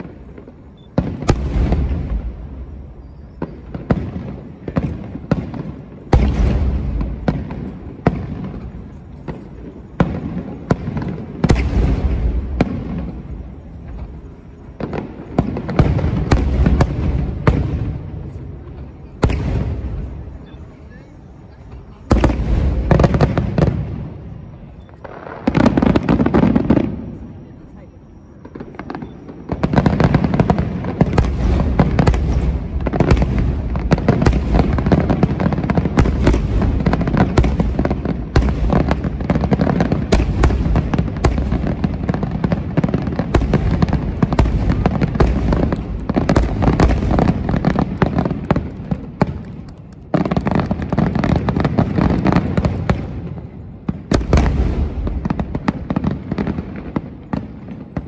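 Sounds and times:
firework shells bursting: 43.4 - 53.1.

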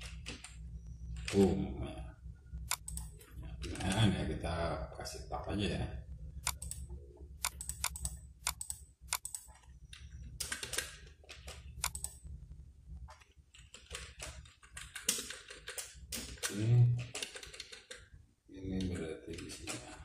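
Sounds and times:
typing on computer keyboard: 2.7 - 4.1, 6.4 - 6.8, 7.4 - 12.2, 13.1 - 18.1
person humming: 16.5 - 17.0.

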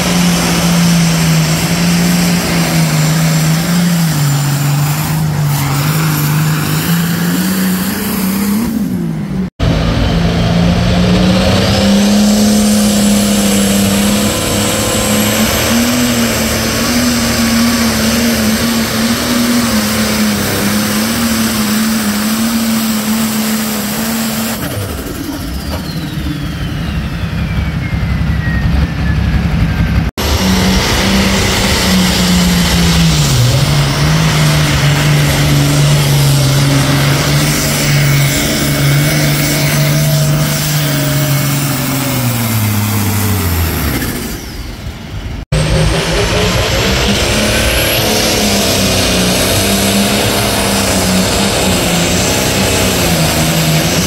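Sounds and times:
diesel tractor engines at full throttle: 0.0 - 54.0
falling whistle: 25.6 - 30.0.

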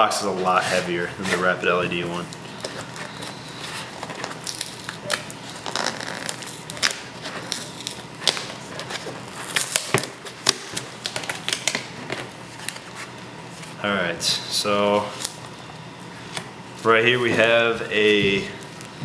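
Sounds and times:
cardboard crackling and clicking: 1.2 - 13.2
packing tape tearing: 2.2 - 13.7.

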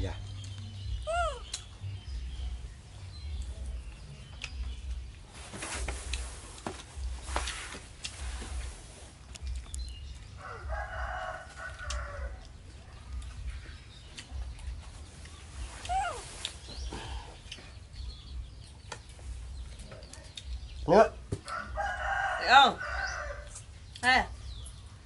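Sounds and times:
rooster crowing: 10.4 - 12.5, 21.5 - 23.6.

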